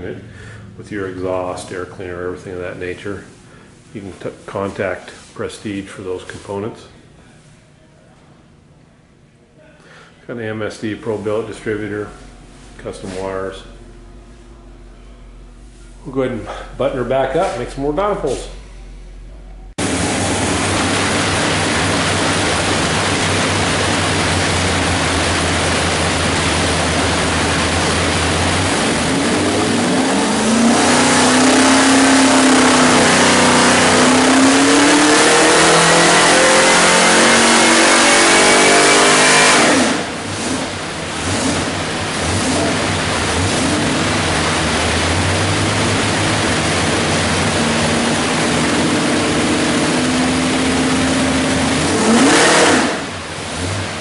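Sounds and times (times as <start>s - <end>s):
engine revving on a dyno: 19.8s - 54.0s.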